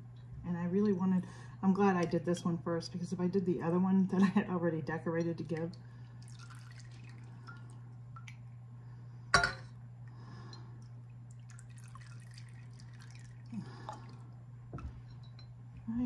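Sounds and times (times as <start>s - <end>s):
steady low hum: 0.0s - 16.0s
oil trickling into glass bottle: 5.9s - 8.4s, 10.8s - 14.3s
glass clink: 9.3s - 9.7s, 14.8s - 15.6s.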